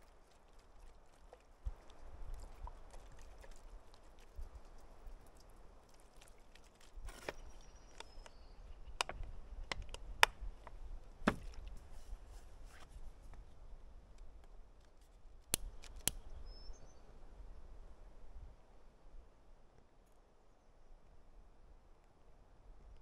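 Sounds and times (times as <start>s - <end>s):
plastic bottle and charcoal clicks: 14.8s - 16.3s.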